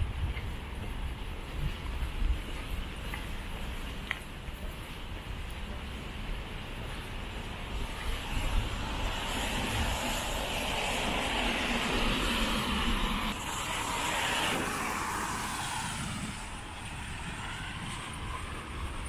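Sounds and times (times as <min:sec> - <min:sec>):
passing vehicle rushing: 0:08.2 - 0:19.0.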